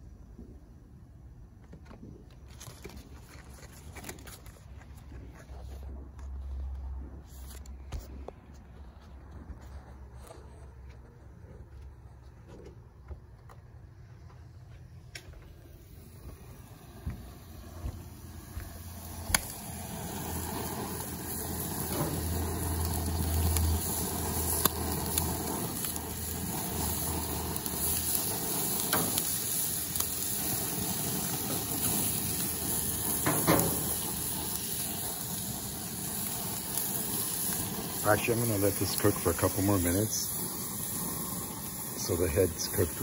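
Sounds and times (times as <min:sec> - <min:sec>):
octopus sizzling on grill: 0:15.9 - 0:43.0.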